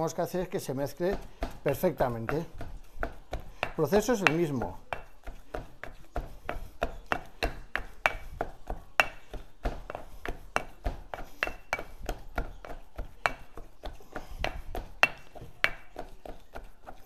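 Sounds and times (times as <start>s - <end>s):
pestle pounding in stone mortar: 0.0s - 17.0s.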